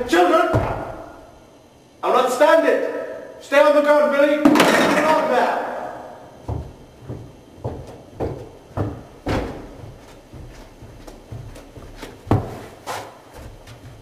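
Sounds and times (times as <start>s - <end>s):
thumps of plastic chairs moving: 6.4s - 14.0s.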